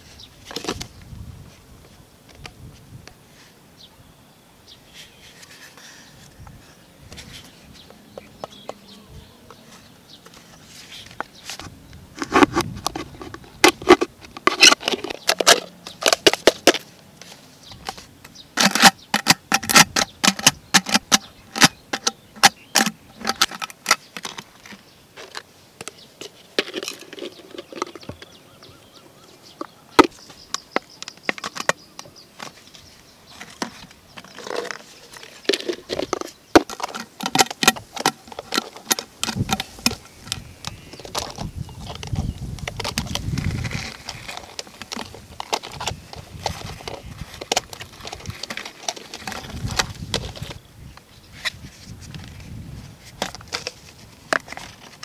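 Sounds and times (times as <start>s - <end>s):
plastic cups crackling and clicking: 0.1s - 1.2s, 4.9s - 8.9s, 9.5s - 55.0s.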